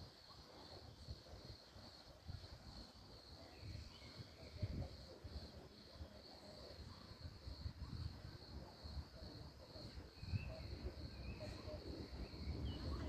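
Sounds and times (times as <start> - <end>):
crickets trilling: 0.0 - 13.0.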